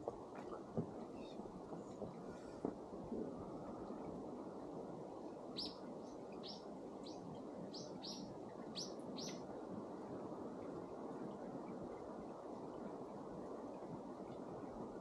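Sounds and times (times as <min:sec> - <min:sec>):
low outdoor noise: 0:00.0 - 0:15.0
small bird chirping: 0:06.4 - 0:08.2, 0:08.8 - 0:09.4.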